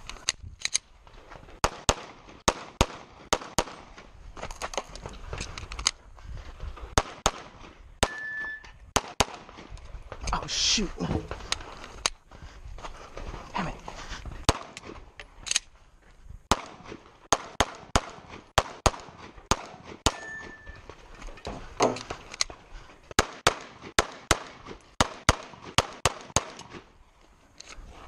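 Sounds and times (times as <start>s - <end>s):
pistol firing rapid shots: 1.6s - 3.8s, 7.0s - 8.2s, 9.0s - 9.5s, 16.5s - 20.2s, 23.2s - 26.6s.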